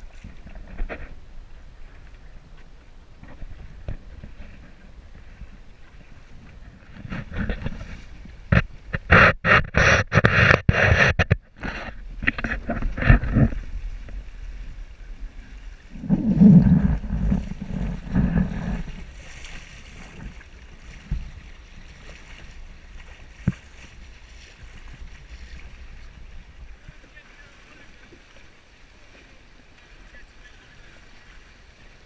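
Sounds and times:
rush of water: 0.0s - 32.0s
water splashing against boat hull: 0.0s - 32.0s.

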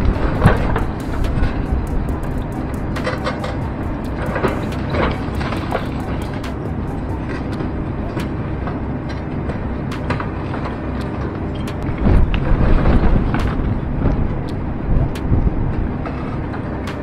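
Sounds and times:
excavator engine running under load: 0.0s - 17.0s.

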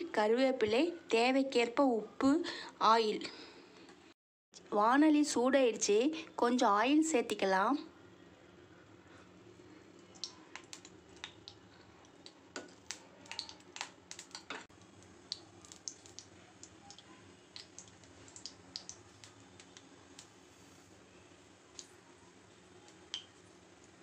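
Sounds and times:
oil crackling in a hot pan: 9.8s - 24.0s.

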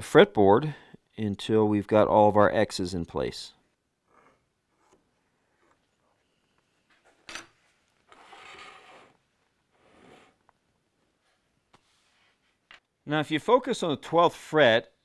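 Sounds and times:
metal tools scraping on wood: 8.1s - 9.2s.

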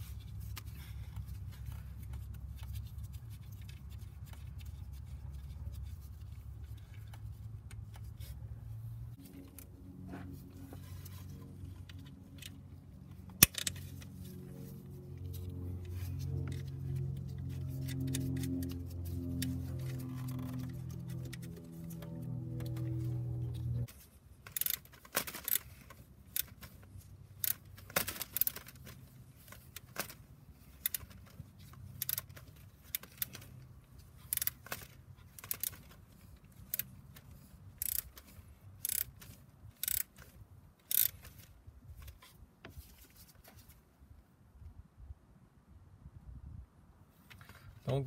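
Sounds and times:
ratchet wrench clicking: 13.4s - 13.9s, 24.5s - 25.7s, 27.4s - 28.7s, 31.9s - 33.5s, 34.3s - 35.8s, 37.8s - 38.2s, 38.8s - 41.4s.

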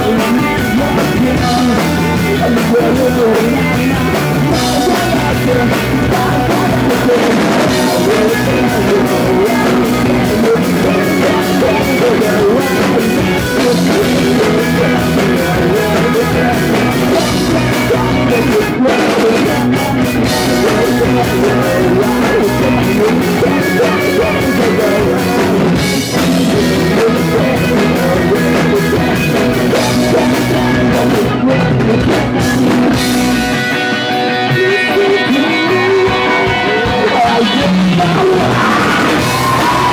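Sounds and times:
distorted electric guitars: 0.0s - 39.9s
drum kit: 0.0s - 39.9s
man singing: 0.0s - 39.9s
punk rock band playing: 0.0s - 39.9s.

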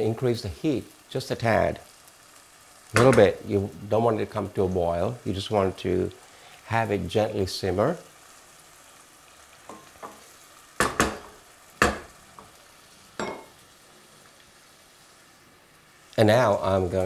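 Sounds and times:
faint sizzle from pan: 0.0s - 17.0s
wooden spoon knocking pan: 10.8s - 12.6s.

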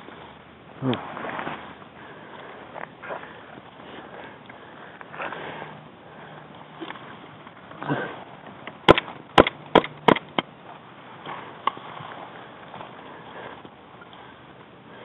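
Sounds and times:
clothing and leaves rustling: 0.0s - 9.3s, 10.5s - 15.0s
airsoft gun shots: 8.9s - 10.4s.

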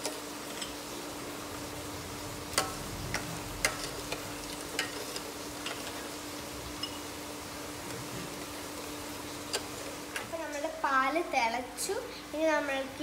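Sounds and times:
metal spoon stirring in saucepan: 0.0s - 0.9s, 2.4s - 6.2s, 8.7s - 10.3s
steady low hum: 0.0s - 12.6s.

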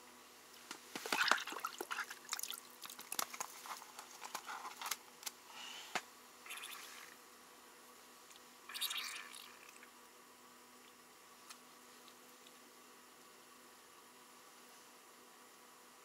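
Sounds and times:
paper packet rustling: 2.9s - 5.0s.

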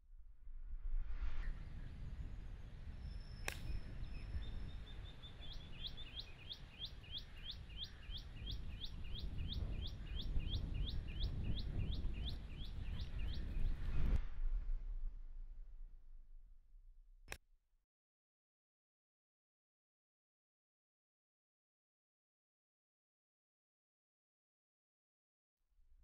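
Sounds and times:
outdoor background noise: 0.0s - 17.4s
bird calling repeated rising notes: 3.1s - 14.0s.

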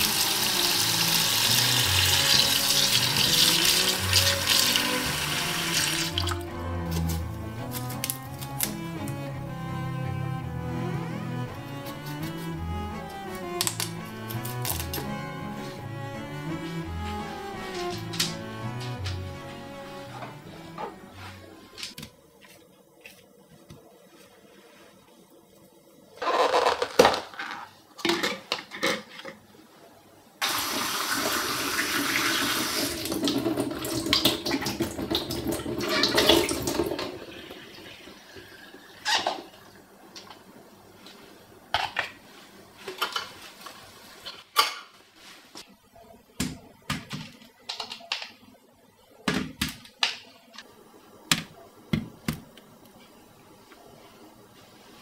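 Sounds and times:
kitchen tap running: 0.0s - 6.5s, 30.4s - 39.8s.

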